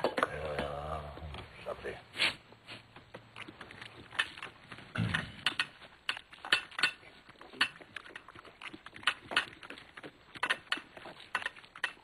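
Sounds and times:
dishes and utensils clinking: 5.0 - 8.4.

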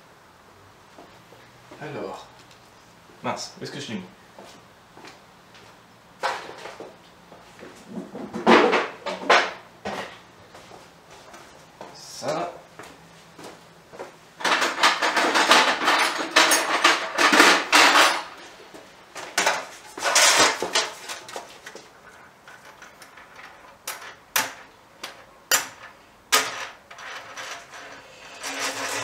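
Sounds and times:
tools clattering and scraping: 14.4 - 18.5, 19.2 - 29.0.

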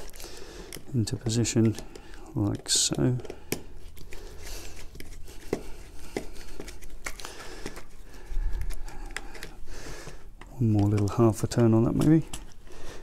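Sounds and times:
screwdriver clicks and creaks: 0.0 - 4.1
plastic faceplate handled: 0.0 - 12.7.

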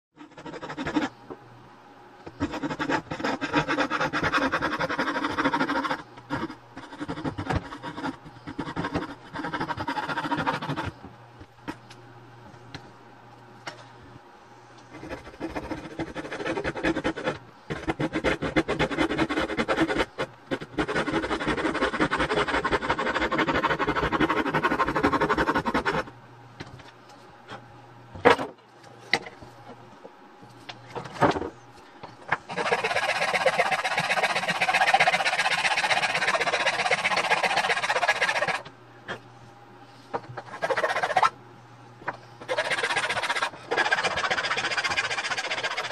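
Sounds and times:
hand tool rasping on wood: 0.2 - 1.2, 2.4 - 11.0, 15.0 - 26.0, 32.5 - 38.6, 40.4 - 41.3, 42.4 - 45.9.

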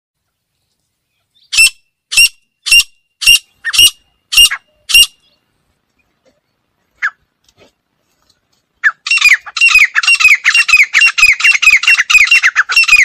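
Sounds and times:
francolin calling shrill notes: 1.4 - 5.4, 8.8 - 13.0.

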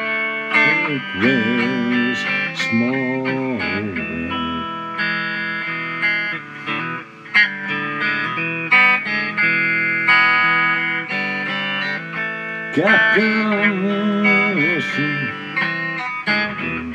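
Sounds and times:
guitar bending notes: 0.0 - 16.9
plucked guitar notes: 0.0 - 16.9
low accompaniment: 12.8 - 16.9.

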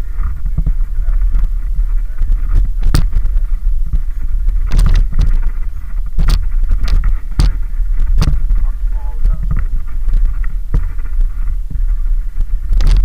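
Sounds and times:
bike rattling knocks: 0.0 - 12.0
bike tyres rumbling on gravel: 0.0 - 13.0
wind on microphone: 0.0 - 13.0.

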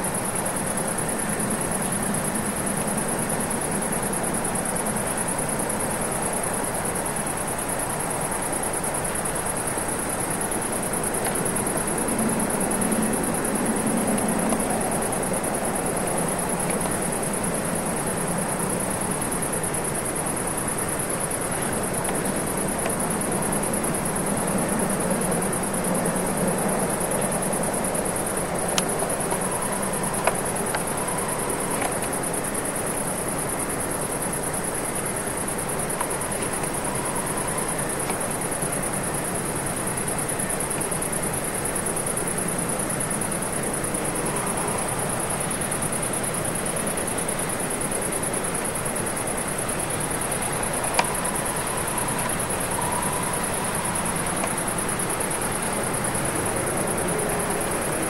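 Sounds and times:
crickets chirring: 0.0 - 58.0
faint clicks: 31.7 - 32.2, 50.7 - 51.3.

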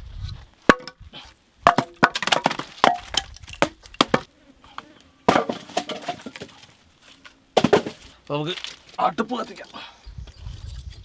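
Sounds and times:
firewood logs knocking together: 0.7 - 1.0, 1.6 - 4.3, 5.3 - 6.8, 7.6 - 9.5.

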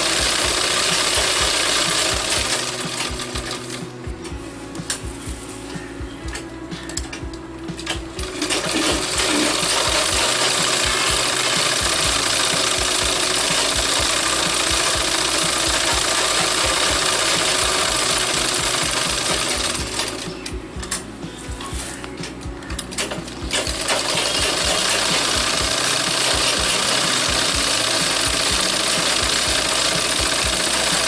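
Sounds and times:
sewing machine stitching: 0.0 - 3.8, 7.9 - 20.3, 23.0 - 31.0.

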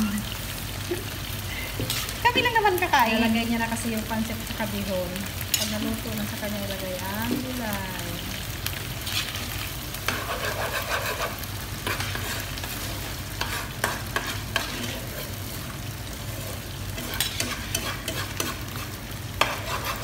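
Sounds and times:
cooking sizzle: 0.0 - 20.0
ladle scraping wok: 9.0 - 20.0.

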